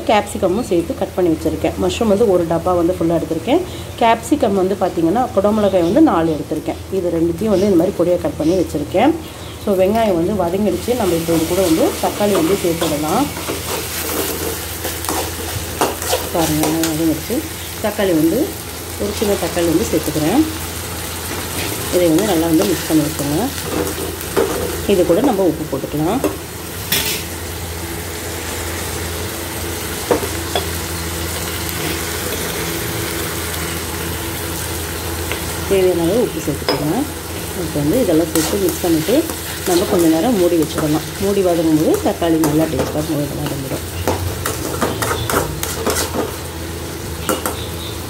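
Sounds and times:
vegetables sizzling in hot oil: 0.0s - 48.0s
spatula scraping a pan: 11.2s - 16.9s, 43.4s - 46.4s.

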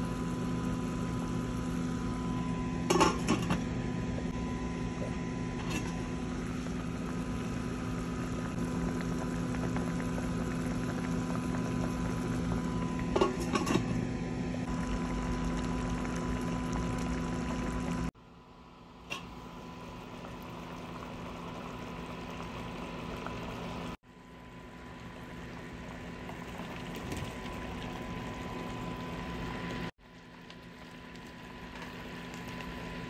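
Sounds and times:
low hum: 0.0s - 29.9s
sauce bubbling in a pot: 3.9s - 33.0s.

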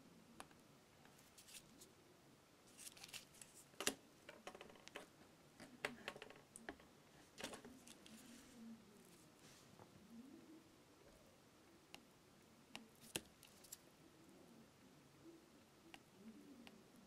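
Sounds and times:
tablet being handled: 1.1s - 1.9s, 2.7s - 8.5s, 13.0s - 13.8s.

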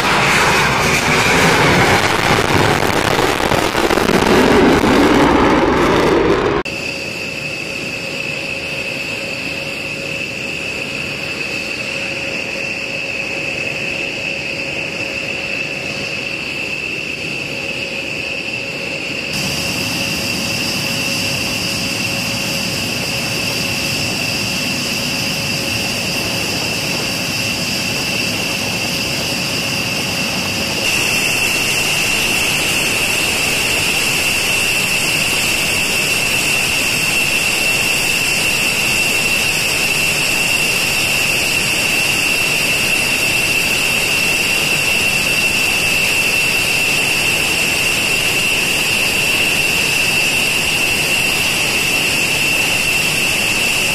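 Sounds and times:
jet engines running: 0.0s - 53.9s.

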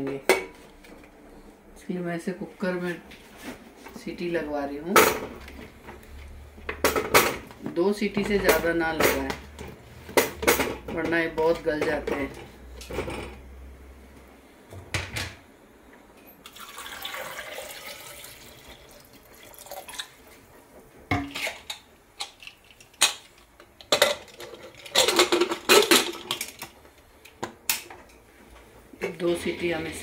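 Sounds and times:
water pouring into pot: 16.4s - 20.2s
metal lid clinking and clattering: 23.9s - 26.6s.

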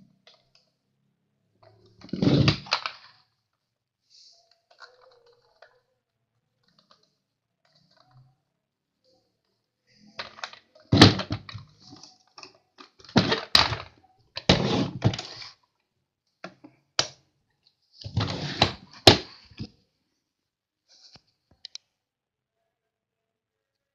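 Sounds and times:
plastic toy trucks clattering: 1.6s - 3.2s, 10.1s - 15.6s.

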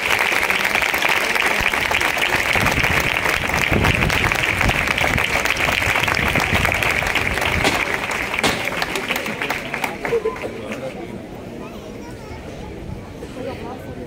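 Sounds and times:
crowd applauding: 0.0s - 11.2s.

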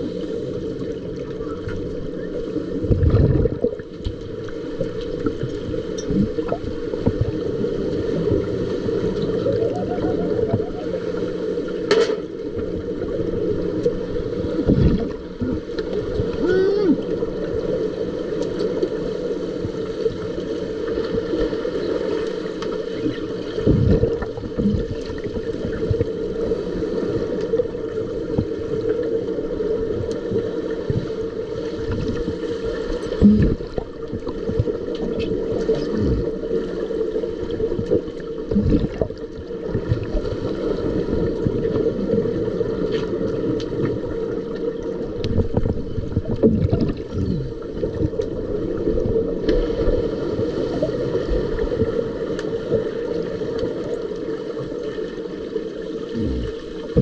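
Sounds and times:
muffled water wash: 0.0s - 57.0s
steady underwater hum: 0.0s - 57.0s.

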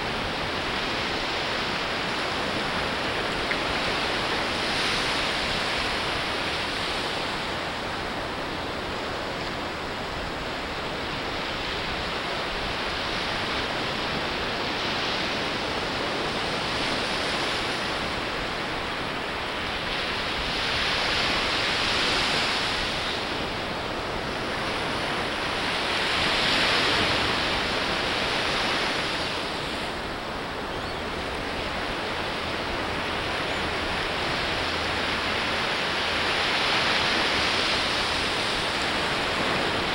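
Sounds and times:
ocean surf breaking: 0.0s - 39.9s.

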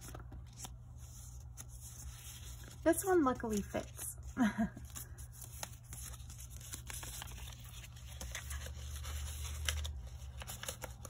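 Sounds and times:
paper rustling: 0.0s - 11.0s.

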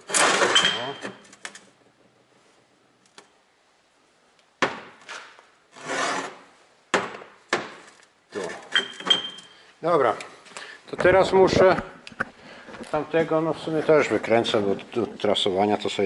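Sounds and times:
steel pins scraping on workbench: 0.0s - 1.3s, 5.1s - 6.4s.

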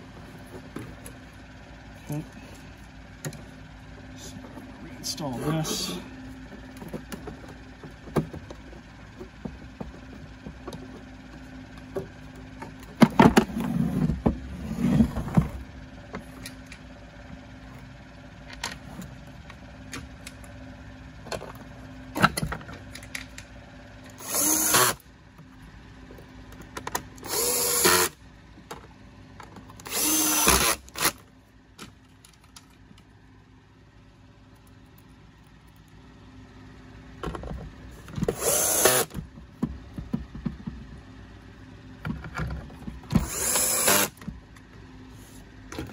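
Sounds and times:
plastic parts knocking and rattling: 6.5s - 11.1s, 37.2s - 38.4s, 39.1s - 41.0s
cordless drill driving screws: 24.2s - 25.0s, 27.2s - 28.2s, 29.9s - 31.1s, 38.3s - 39.1s, 43.2s - 44.2s.

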